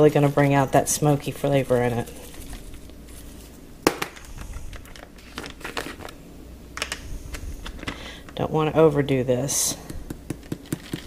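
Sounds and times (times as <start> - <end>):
plastic bag crinkling: 4.4 - 6.2.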